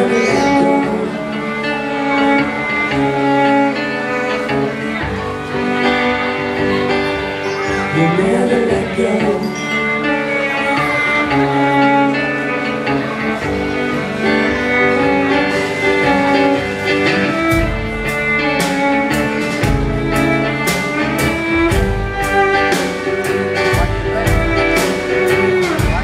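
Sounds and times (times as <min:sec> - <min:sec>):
bowed cello: 0:00.0 - 0:26.0
drum kit beat: 0:15.5 - 0:26.0.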